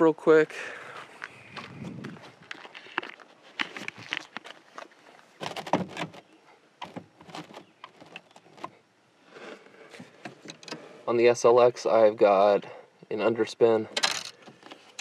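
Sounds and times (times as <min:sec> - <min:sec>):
fishing rods knocking and rustling: 0:02.4 - 0:08.8, 0:13.9 - 0:15.0.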